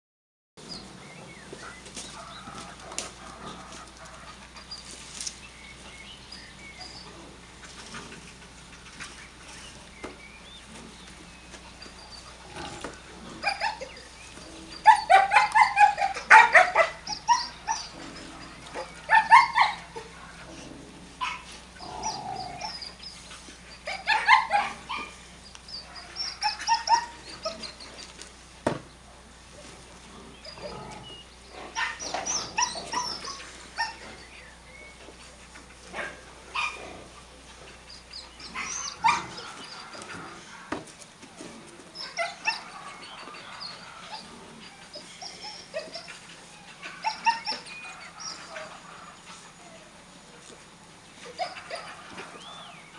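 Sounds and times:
dogs barking: 1.7s - 4.7s, 11.7s - 23.0s, 23.7s - 27.8s, 31.6s - 34.5s, 35.2s - 40.9s, 42.0s - 49.6s, 51.2s - 52.9s.

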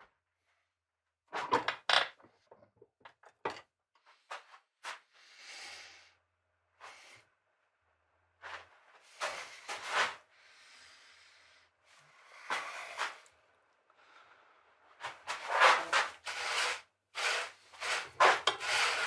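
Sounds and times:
steel tools scraping and rubbing: 15.3s - 19.0s.

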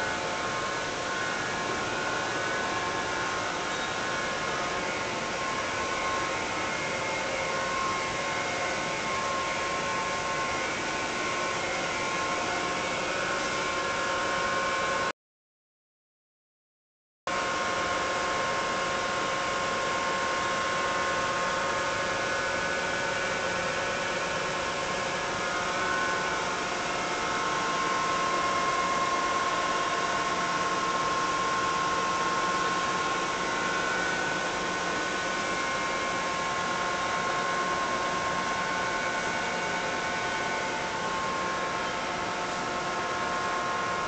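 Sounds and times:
ventilation fan hum: 0.0s - 15.1s, 17.3s - 44.0s.

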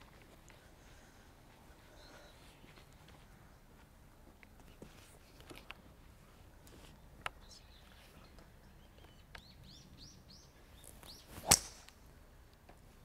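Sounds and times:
bird chirping: 7.4s - 11.6s
golf club striking ball: 11.4s - 12.0s.

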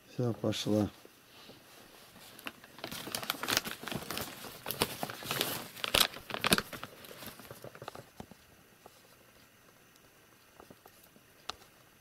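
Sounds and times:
plastic bag crinkling: 2.1s - 8.2s.

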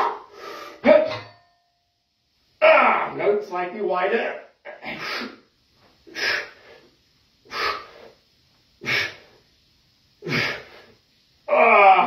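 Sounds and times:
man exhaling forcefully: 7.5s - 8.2s, 8.8s - 9.4s, 10.2s - 11.0s.

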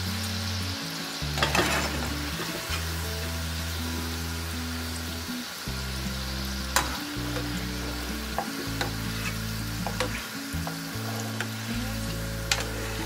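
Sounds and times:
oil sizzling while deep-frying: 0.0s - 13.0s.

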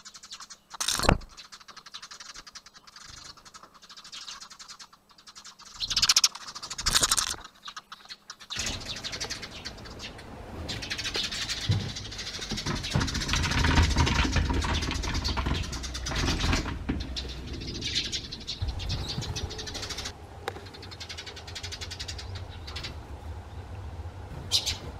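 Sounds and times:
sparrows chirping: 0.0s - 24.9s
low rumble: 8.6s - 24.9s.

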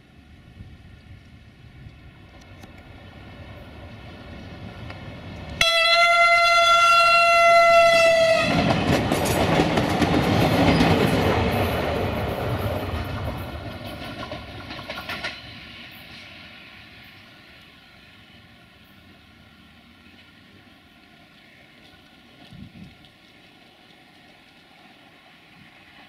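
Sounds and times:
train wheel and engine noise: 0.0s - 26.0s
train wheels clicking: 1.0s - 17.8s
train horn blast: 5.6s - 8.7s.

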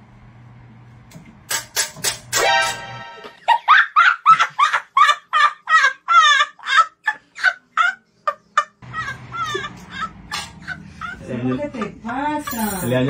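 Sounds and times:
child laughing: 3.3s - 12.4s.

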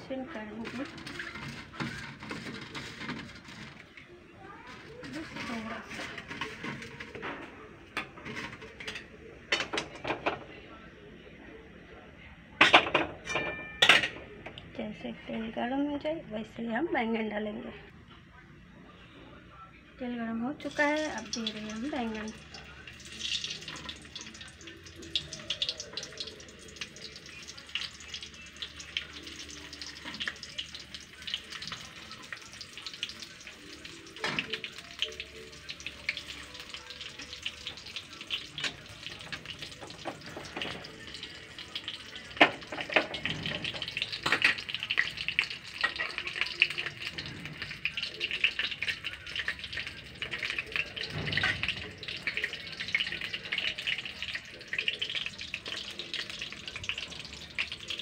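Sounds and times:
eggplant sizzling in hot oil: 0.0s - 3.8s, 4.6s - 7.2s, 20.6s - 58.0s.

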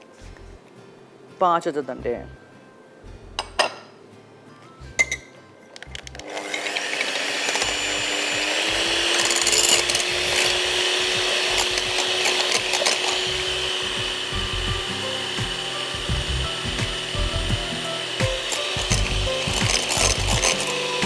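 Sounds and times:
electric hand mixer whine: 6.2s - 21.0s.

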